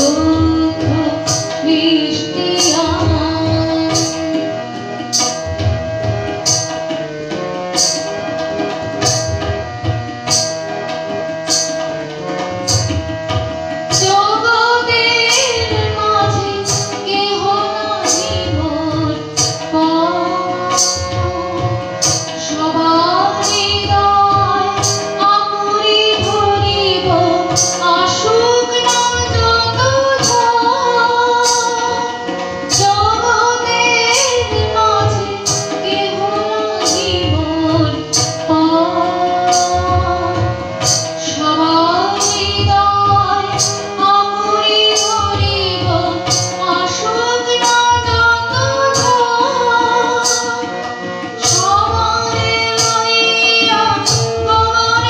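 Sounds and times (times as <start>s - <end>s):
woman singing: 0.0s - 5.4s, 13.9s - 55.0s
harmonium melody: 0.0s - 55.0s
percussion beat: 2.4s - 14.4s, 15.0s - 25.4s, 31.4s - 44.2s, 47.6s - 55.0s.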